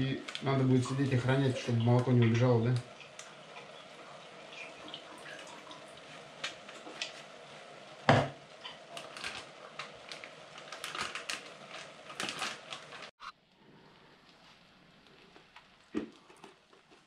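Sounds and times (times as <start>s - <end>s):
low steady background noise: 0.0s - 17.0s
plastic bag crackling: 8.8s - 13.2s.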